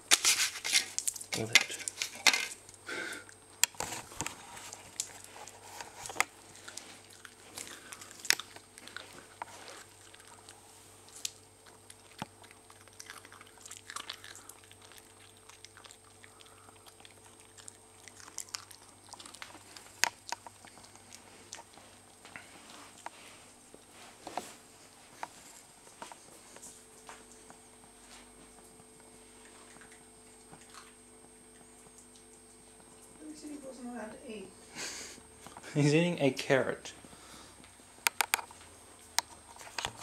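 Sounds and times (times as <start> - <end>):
puppy crunching on a carrot: 0.0 - 23.9, 28.5 - 33.2, 36.9 - 40.0.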